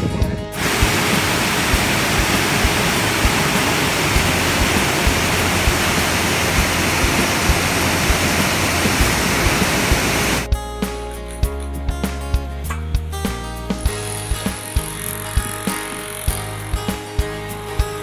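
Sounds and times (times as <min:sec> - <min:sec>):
background music: 0:00.0 - 0:18.0
waterfall rushing over rocks: 0:00.6 - 0:10.5.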